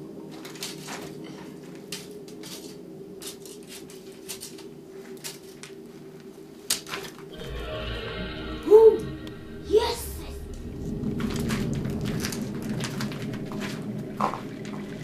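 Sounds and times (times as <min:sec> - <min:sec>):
light clicks and scuffs on gritty floor: 0:00.3 - 0:07.2
steady low hum: 0:07.3 - 0:15.0.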